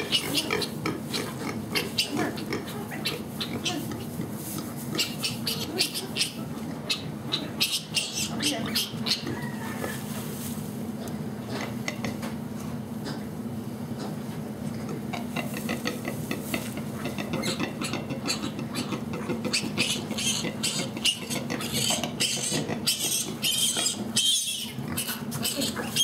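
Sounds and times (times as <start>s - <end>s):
steady low hum: 0.0s - 26.0s
hay rustling and crackling: 2.8s - 6.1s, 9.8s - 10.8s, 15.2s - 17.2s.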